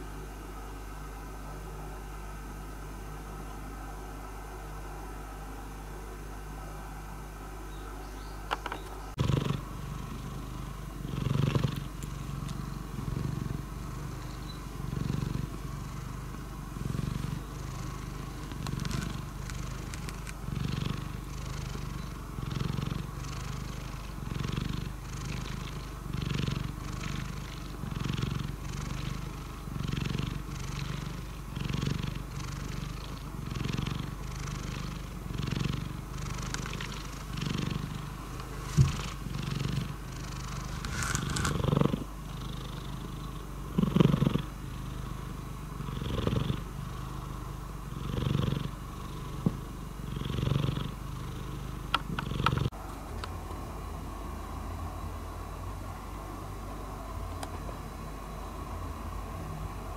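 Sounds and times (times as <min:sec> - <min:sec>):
cat purring: 0:08.6 - 0:52.8.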